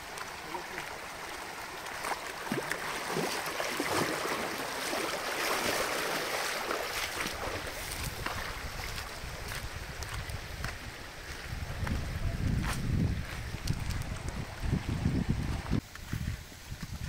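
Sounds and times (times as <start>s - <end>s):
river rushing over stones: 0.0s - 11.7s
wind buffeting microphone: 7.1s - 17.0s.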